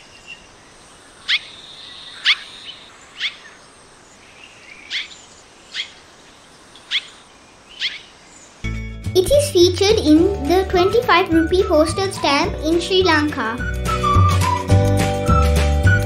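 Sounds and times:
swallow calls: 1.0 - 8.6.

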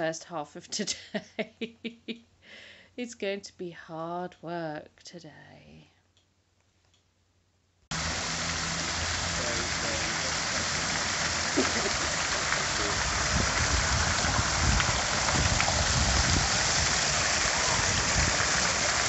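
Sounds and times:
fountain water splashing into basin: 7.9 - 19.0.

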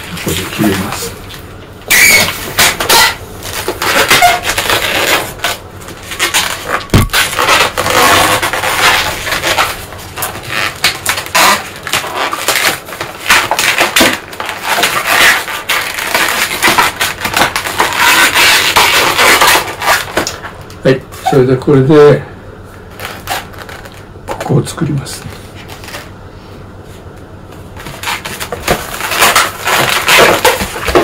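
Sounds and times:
balloons squeaking when rubbed: 1.9 - 21.6, 22.9 - 24.0, 27.8 - 31.0.

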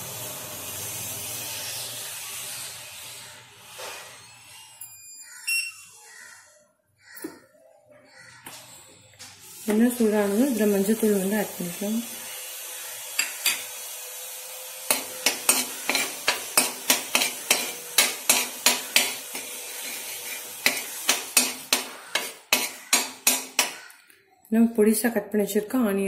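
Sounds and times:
oil sizzling: 0.0 - 3.8, 9.3 - 23.9
spoon scraping metal pan: 13.1 - 13.8, 14.9 - 23.9.

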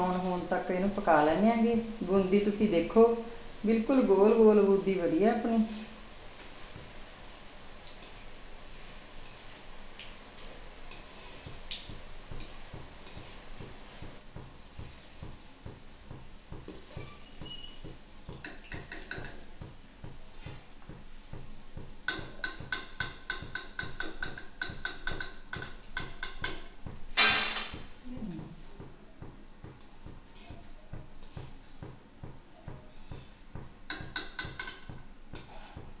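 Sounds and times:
metal skimmer tapping a pan: 18.3 - 19.5, 22.1 - 27.7, 33.9 - 35.4.

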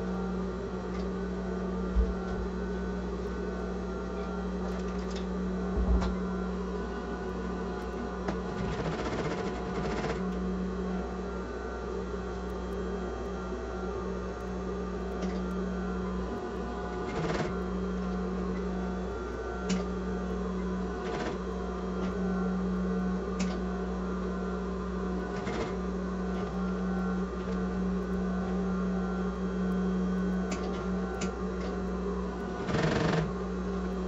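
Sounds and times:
sewing machine running: 7.4 - 10.4, 16.2 - 19.9, 20.8 - 22.3, 25.1 - 28.7, 30.4 - 33.4.

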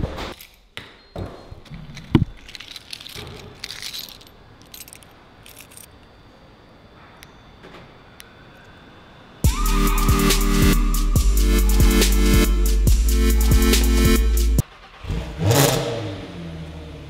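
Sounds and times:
keys jangling: 1.9 - 6.0.

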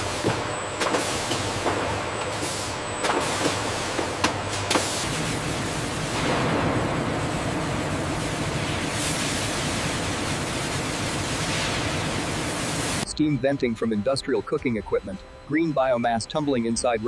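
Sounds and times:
machinery running: 0.0 - 17.0
steam hissing from cooking drums: 7.8 - 13.0.

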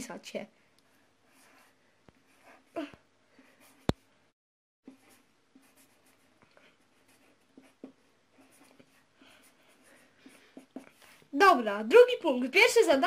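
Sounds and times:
marker scratching on paper: 4.9 - 11.4.

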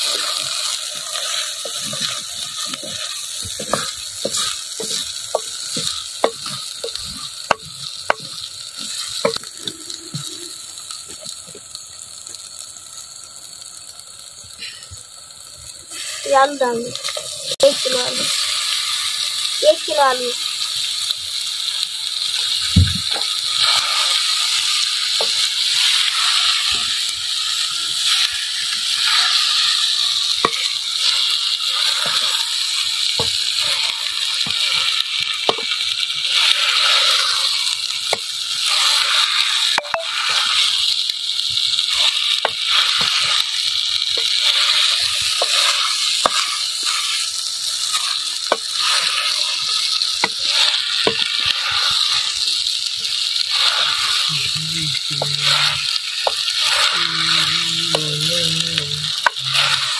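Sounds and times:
wooden spoon scraping pot: 0.0 - 9.5, 44.2 - 52.0
potatoes sizzling: 0.0 - 59.9.

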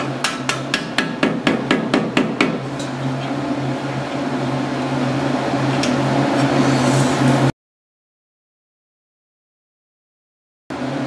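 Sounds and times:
low machine hum: 0.0 - 7.5.

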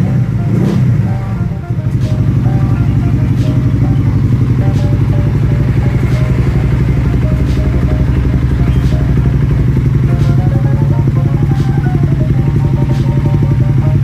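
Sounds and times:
faint background music: 0.0 - 14.0
motorcycle engine idling: 0.0 - 14.0.

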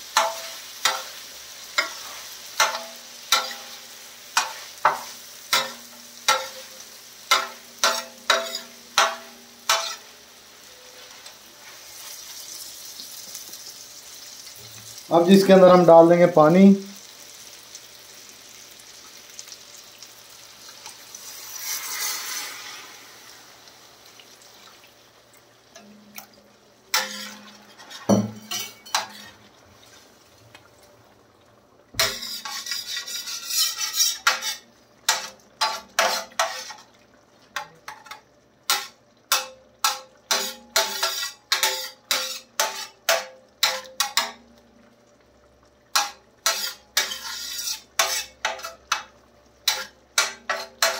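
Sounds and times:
metal spatula scraping a pan: 0.0 - 12.6, 21.2 - 23.4, 26.9 - 29.4, 32.0 - 36.9, 37.6 - 44.4, 45.9 - 50.9
water hissing on hot pan: 0.0 - 31.2, 31.9 - 50.9.

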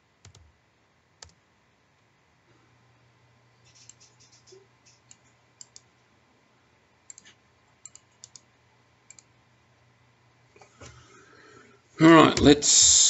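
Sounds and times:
keyboard keys clicking: 0.2 - 0.5, 7.1 - 8.4.

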